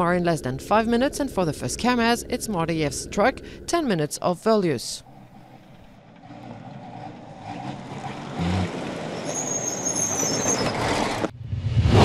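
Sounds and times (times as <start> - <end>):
truck driving past on dirt: 5.2 - 12.0.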